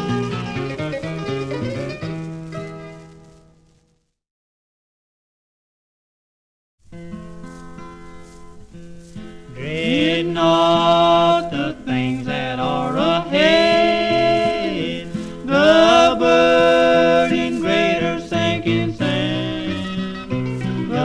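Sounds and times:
plucked guitar and mandolin: 0:00.0 - 0:03.1, 0:07.0 - 0:21.0
two men singing in harmony: 0:09.6 - 0:21.0.

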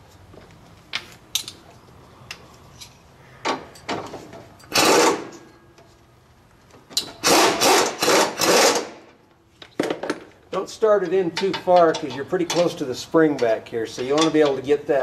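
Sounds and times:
ratchet turning a bolt: 0:04.7 - 0:05.4, 0:07.0 - 0:08.9.

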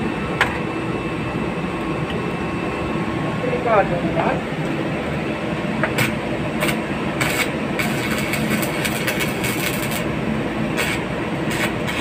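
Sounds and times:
welding machine hum: 0:00.1 - 0:12.0
welding arc crackling: 0:06.0 - 0:12.0.

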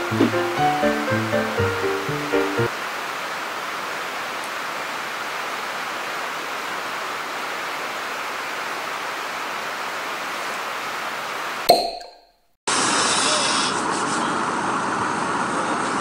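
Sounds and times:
steady outdoor hiss: 0:00.0 - 0:11.7.

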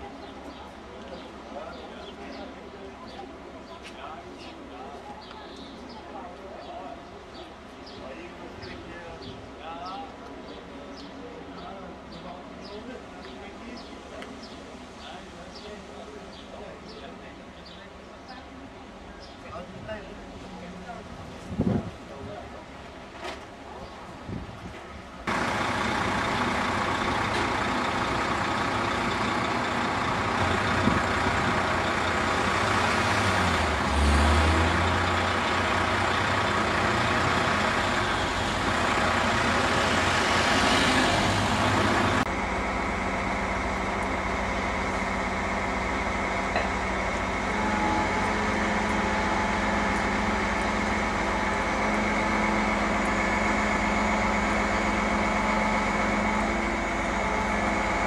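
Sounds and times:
crane engine running: 0:25.2 - 0:58.0.

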